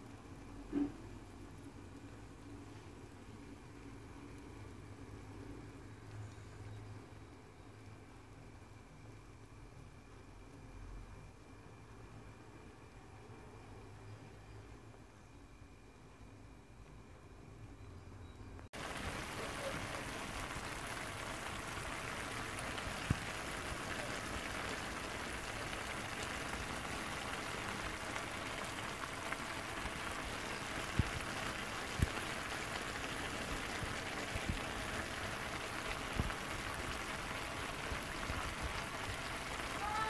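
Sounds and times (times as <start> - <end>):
pasta sizzling in a pan: 18.8 - 40.0.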